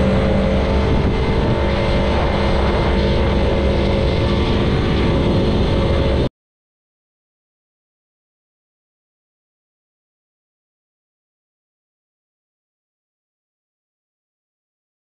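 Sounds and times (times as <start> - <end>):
engine running steadily: 0.0 - 6.3
rushing noise: 0.0 - 6.3.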